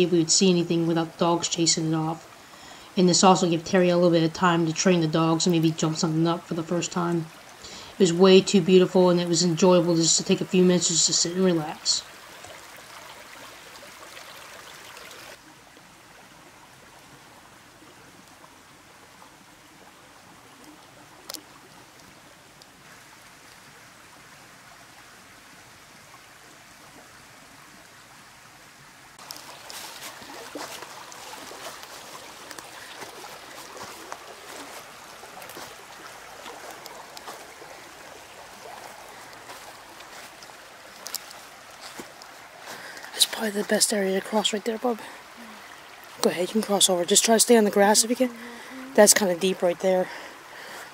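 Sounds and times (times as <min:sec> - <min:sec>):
creek trickling over rocks: 0:00.0 - 0:50.9
footsteps through dry leaves: 0:29.2 - 0:35.8, 0:39.4 - 0:42.2.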